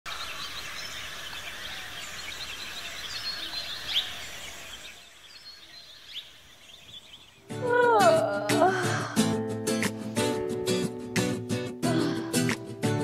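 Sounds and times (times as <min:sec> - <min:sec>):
birds chirping: 0:00.1 - 0:08.2.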